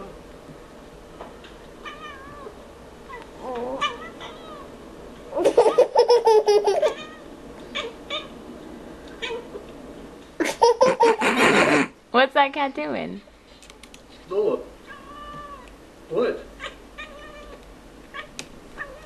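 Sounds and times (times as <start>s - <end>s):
child laughing: 5.4s - 7.1s, 10.4s - 11.9s.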